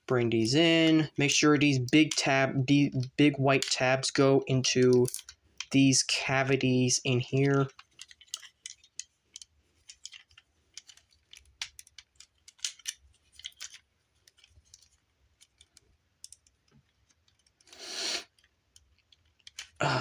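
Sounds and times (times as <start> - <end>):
plastic toy parts clicking: 3.0 - 4.0, 4.6 - 6.5, 7.1 - 19.8.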